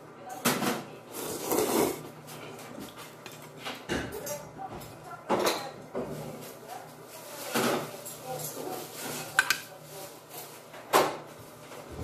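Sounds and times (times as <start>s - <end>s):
person slurping noodles: 1.1s - 2.0s.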